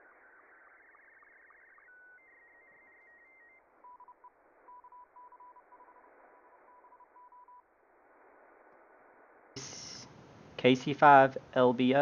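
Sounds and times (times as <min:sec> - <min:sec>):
morse code beeps: 0:01.9 - 0:07.6
radio receiver hiss: 0:07.9 - 0:11.4.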